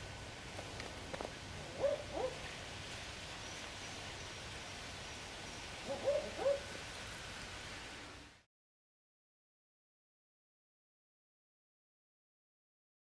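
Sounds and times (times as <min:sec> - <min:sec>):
owl double hoots: 0:05.8 - 0:06.7.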